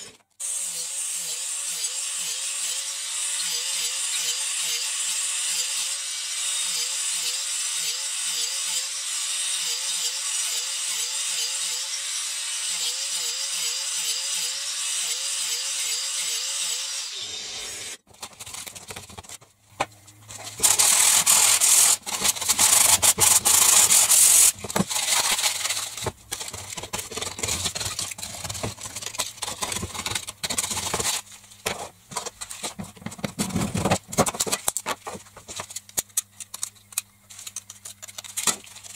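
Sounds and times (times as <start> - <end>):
angle grinder cutting plastic pipe: 0.0 - 18.1, 20.3 - 31.2
rough scraping and rubbing: 20.2 - 33.9.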